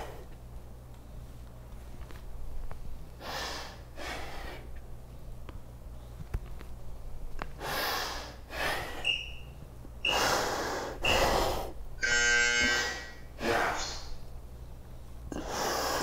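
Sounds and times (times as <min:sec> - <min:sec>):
heavy exercise breathing: 0:00.0 - 0:00.3, 0:03.2 - 0:06.2, 0:07.6 - 0:09.4, 0:10.0 - 0:11.8, 0:14.8 - 0:16.0
timer buzz: 0:09.0 - 0:10.4, 0:12.0 - 0:14.0
timer short high beeps: 0:09.1 - 0:10.2.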